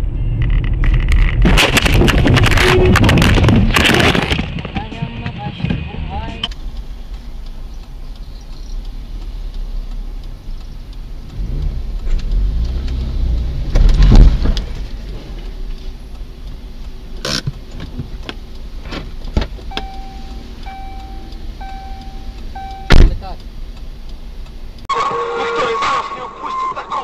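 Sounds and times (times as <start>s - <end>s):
engine and road rumble: 0.0s - 27.0s
electronic beep: 19.7s - 23.1s, 25.0s - 27.0s
loud thump: 22.9s - 23.2s.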